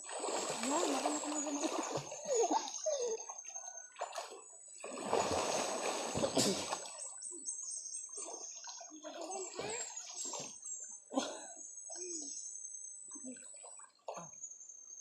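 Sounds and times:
water splashing and sloshing: 0.0s - 7.4s, 8.1s - 11.0s.

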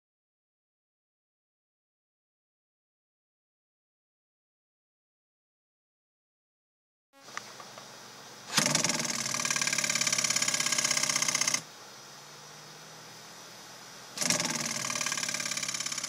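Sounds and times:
cooling fan humming: 7.2s - 16.0s.

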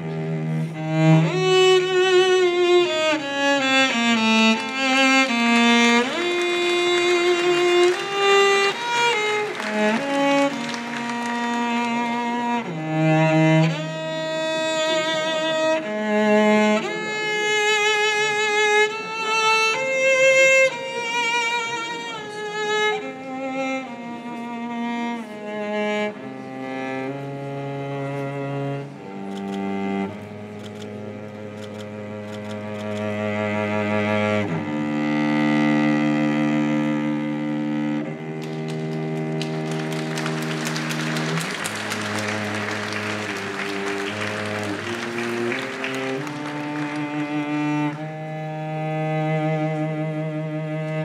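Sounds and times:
bowed strings slow melody: 0.0s - 51.0s.

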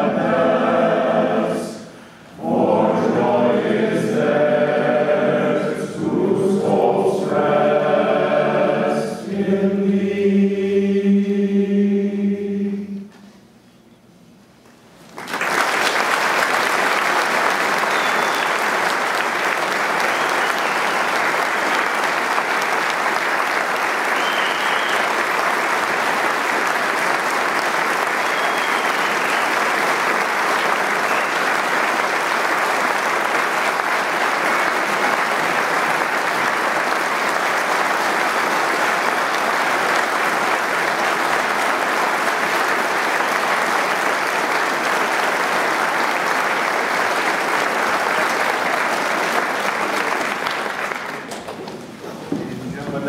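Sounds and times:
audience applauding: 15.1s - 52.0s.

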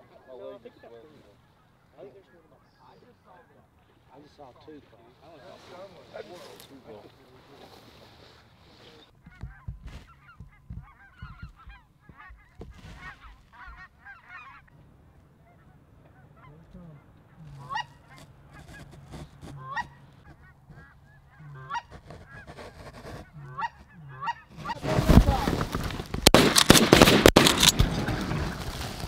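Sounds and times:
geese honking: 0.0s - 4.4s, 7.8s - 26.4s.

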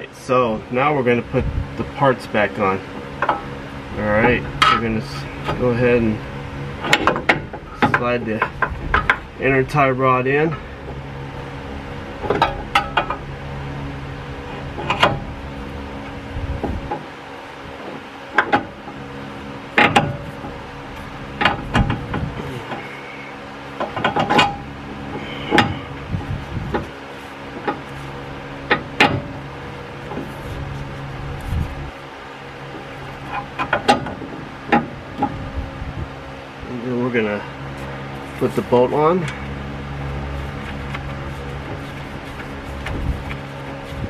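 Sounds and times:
low hum: 0.0s - 44.0s
metal clicks and knocks: 6.8s - 9.3s, 19.8s - 20.2s, 23.8s - 24.6s, 32.7s - 35.4s.

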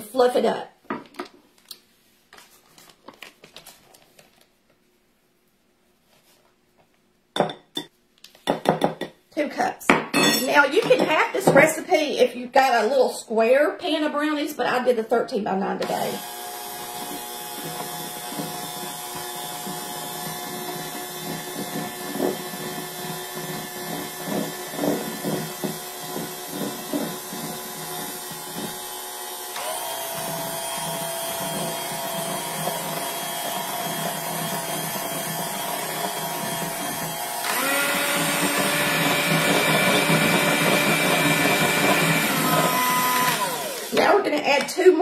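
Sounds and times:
mixer beaters knocking bowl: 10.1s - 11.8s, 15.8s - 45.0s
electric hand mixer running: 15.8s - 44.4s.

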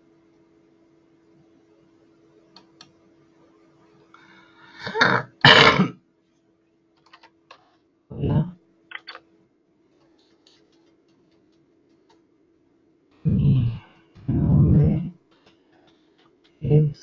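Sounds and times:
person clearing throat: 4.8s - 6.0s
keyboard clicks: 7.0s - 7.4s, 8.9s - 9.3s, 10.2s - 12.2s, 15.3s - 16.6s.

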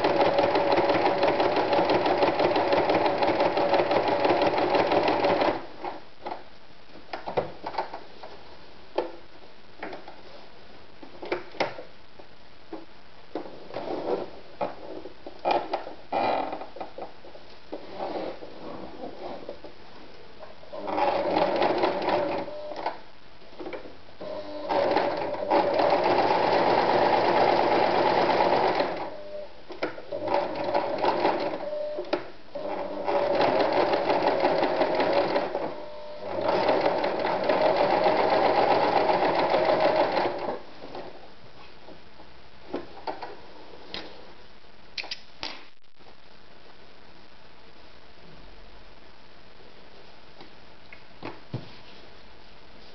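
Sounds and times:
electric sewing machine stitching: 0.0s - 5.6s, 24.2s - 29.2s, 30.1s - 31.6s, 32.6s - 40.5s.

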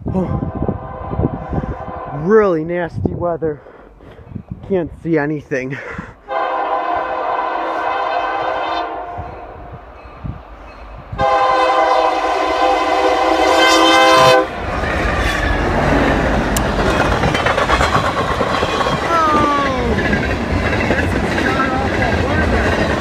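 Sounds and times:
train engine and wheels rumbling: 0.0s - 5.6s, 6.2s - 23.0s
locomotive air horn blasts: 0.1s - 2.3s, 6.3s - 9.5s, 11.2s - 14.6s.

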